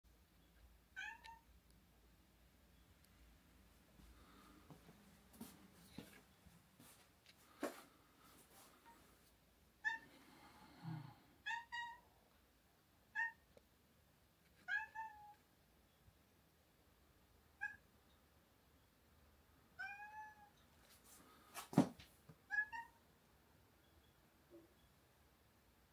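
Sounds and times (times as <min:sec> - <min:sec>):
cat meowing: 0:01.0 - 0:01.4, 0:09.8 - 0:10.1, 0:11.4 - 0:12.1, 0:13.1 - 0:13.4, 0:14.6 - 0:15.4, 0:17.6 - 0:17.8, 0:19.8 - 0:20.6, 0:22.5 - 0:23.0.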